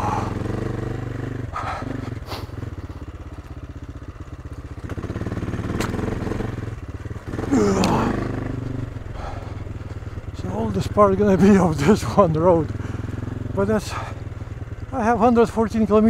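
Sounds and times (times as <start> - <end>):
motorcycle engine revving: 0.0 - 16.0.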